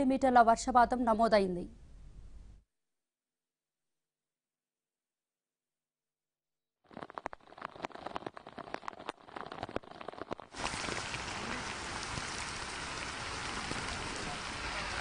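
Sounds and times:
rain: 0:06.9 - 0:15.0.

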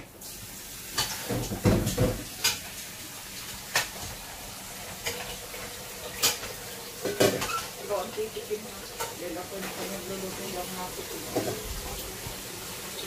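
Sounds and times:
metal utensil scraping pot: 0:06.2 - 0:07.8.

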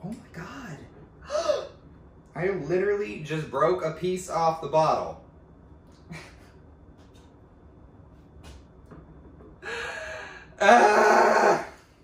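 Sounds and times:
breathy exhale: 0:09.6 - 0:10.6.

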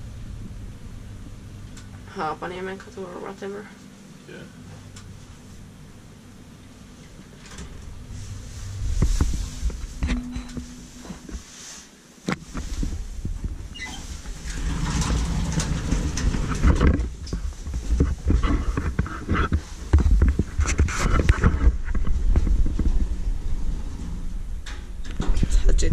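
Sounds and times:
low rumble: 0:00.0 - 0:11.6, 0:12.5 - 0:25.9
footsteps: 0:07.5 - 0:15.0
knocks and clatter: 0:12.3 - 0:23.3.

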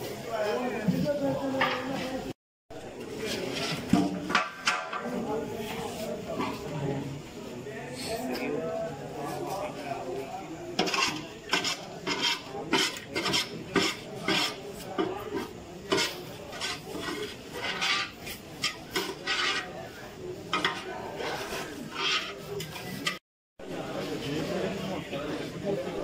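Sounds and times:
hands scrubbing a steel pot: 0:10.8 - 0:23.2.

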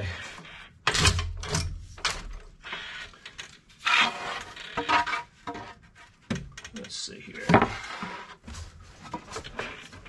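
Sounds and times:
boards scraping on concrete: 0:03.8 - 0:06.0, 0:07.4 - 0:09.8.

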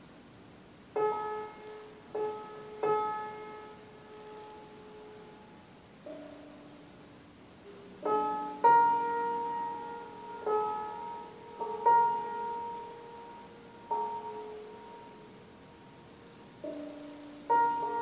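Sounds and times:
slow sparse piano notes: 0:01.0 - 0:18.0.

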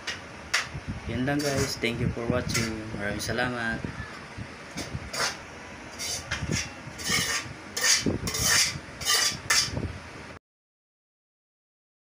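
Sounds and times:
scraping and rubbing noises: 0:01.3 - 0:01.8, 0:02.5 - 0:02.9, 0:04.7 - 0:09.8.

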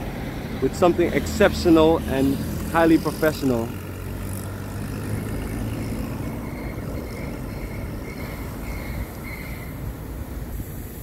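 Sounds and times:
vehicle engine rumbling: 0:00.0 - 0:11.0.

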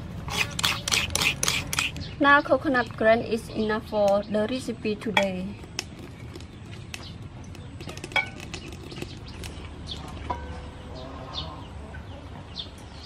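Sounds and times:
birds chirping: 0:00.3 - 0:13.0.

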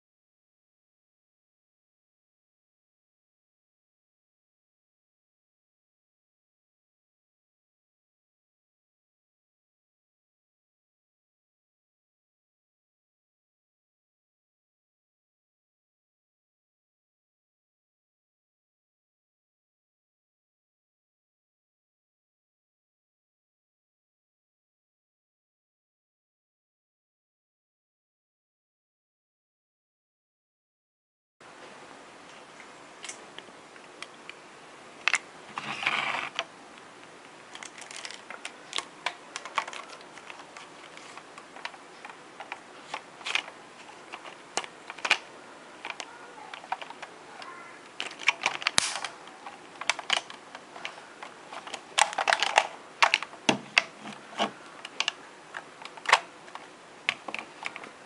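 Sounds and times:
faint steady hiss: 0:31.4 - 0:58.0
plastic scraping rattles: 0:35.5 - 0:36.4, 0:37.5 - 0:41.7, 0:49.8 - 0:55.1
plastic toy belt clicking: 0:51.6 - 0:53.3.

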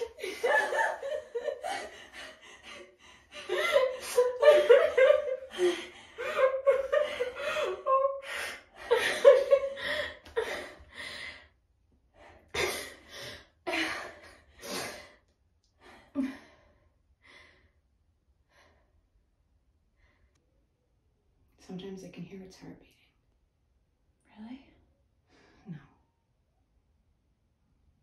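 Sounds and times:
women laughing: 0:00.0 - 0:10.7.

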